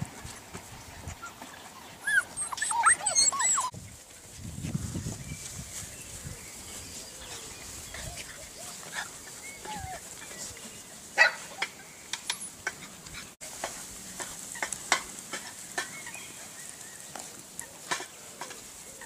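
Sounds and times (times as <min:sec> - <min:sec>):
puppies whimpering and yipping: 0:01.0 - 0:03.7, 0:07.2 - 0:10.6.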